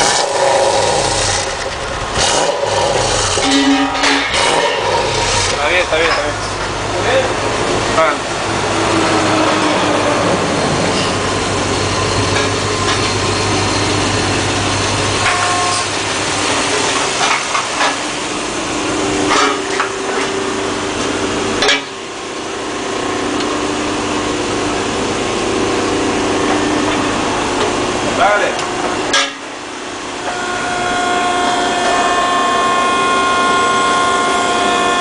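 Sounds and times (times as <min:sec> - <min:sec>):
machine whine: 0:00.0 - 0:35.0
shop machinery running: 0:00.0 - 0:35.0
metal clanks: 0:01.5 - 0:06.8, 0:29.1 - 0:29.5.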